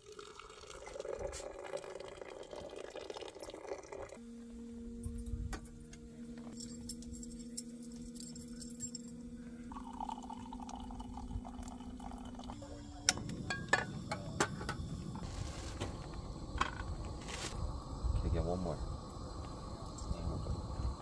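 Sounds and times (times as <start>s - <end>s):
liquid trickling into mug: 0.0s - 4.2s, 9.7s - 12.6s
steady low hum: 4.1s - 21.0s.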